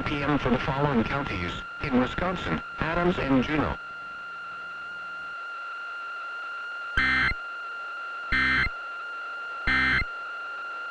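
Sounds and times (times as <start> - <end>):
faint steady high tone: 1.3 - 10.9
digital data tone bursts: 7.0 - 7.4, 8.3 - 8.8, 9.7 - 10.1.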